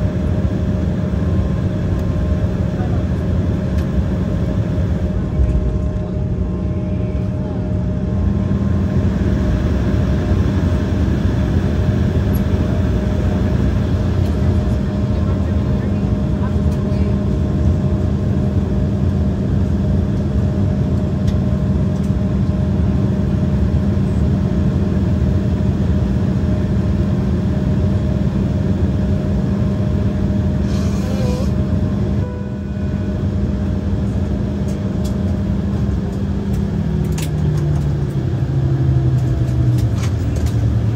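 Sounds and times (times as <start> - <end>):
aircraft cabin engine hum: 0.0 - 40.9.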